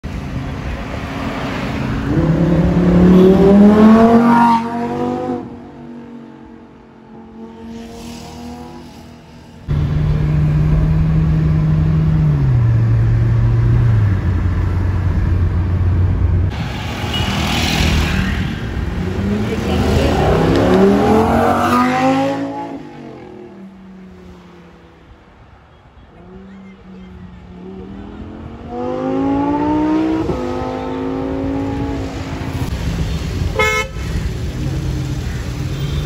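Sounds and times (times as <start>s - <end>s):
car engine accelerating hard: 18.8s - 23.4s.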